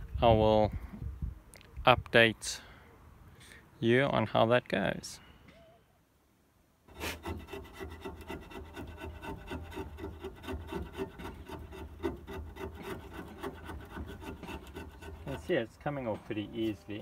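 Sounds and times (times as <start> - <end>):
paint being scraped off metal: 6.9 - 15.6.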